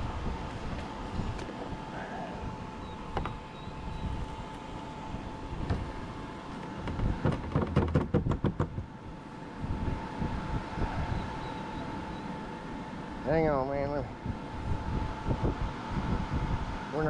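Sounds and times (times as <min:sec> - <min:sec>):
steady background noise: 0:00.0 - 0:17.0
sharp knocks: 0:06.8 - 0:08.8
faint steady tone: 0:10.6 - 0:13.3.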